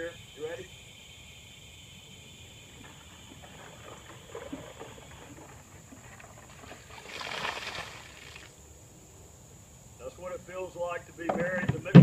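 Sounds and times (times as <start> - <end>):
ice water sloshing: 3.4 - 8.5
ice water pouring out: 6.2 - 8.5.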